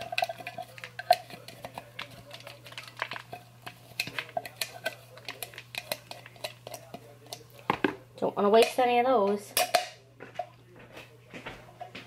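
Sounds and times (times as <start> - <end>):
spatula scraping plastic bowl: 0.0 - 7.9.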